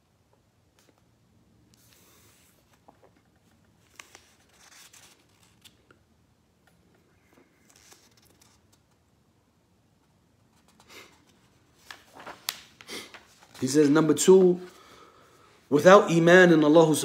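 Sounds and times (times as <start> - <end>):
faint paper rustling: 0.7 - 6.0, 6.6 - 9.1, 10.0 - 15.5.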